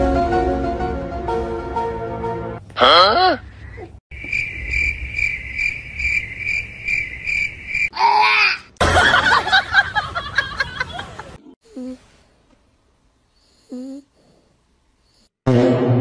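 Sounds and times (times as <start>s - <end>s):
cricket chirping: 4.1s - 7.9s.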